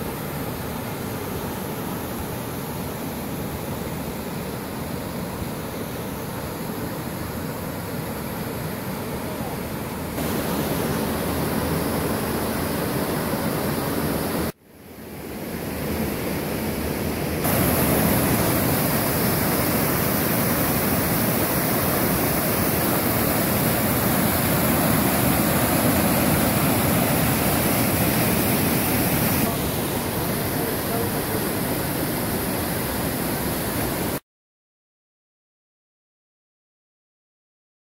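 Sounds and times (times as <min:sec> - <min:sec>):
waterfall rushing over rocks: 0:00.0 - 0:14.6, 0:16.8 - 0:34.2.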